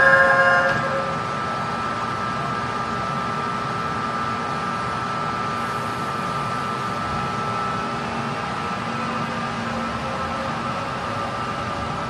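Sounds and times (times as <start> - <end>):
high whine: 0.0 - 2.2
metro train rumble and hiss: 0.0 - 12.0.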